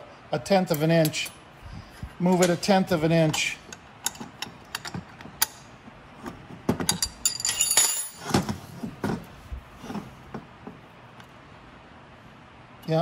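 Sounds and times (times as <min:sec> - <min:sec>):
wrench clinking on metal: 0:03.3 - 0:05.7, 0:06.8 - 0:08.4.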